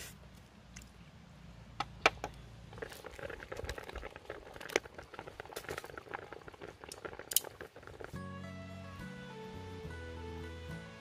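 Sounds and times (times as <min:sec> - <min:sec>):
food bubbling in a pot: 0:02.2 - 0:08.4.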